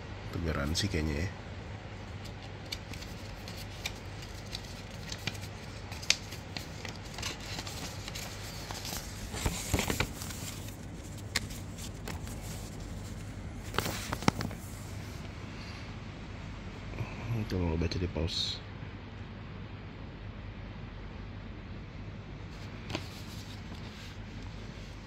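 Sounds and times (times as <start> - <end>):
paper rustling and crinkling: 2.0 - 15.2, 22.5 - 25.0.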